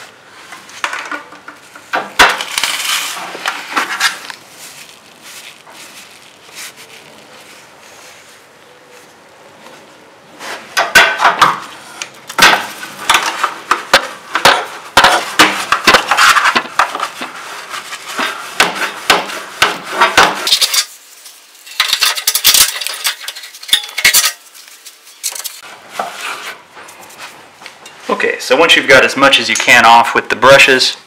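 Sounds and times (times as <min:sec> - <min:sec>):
brush scrubbing wire coil: 0:03.9 - 0:08.5, 0:16.2 - 0:26.4.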